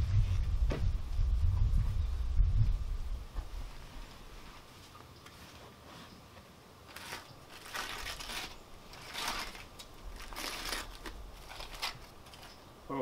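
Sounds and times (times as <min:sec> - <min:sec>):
aluminium foil crinkling: 0:06.8 - 0:12.6.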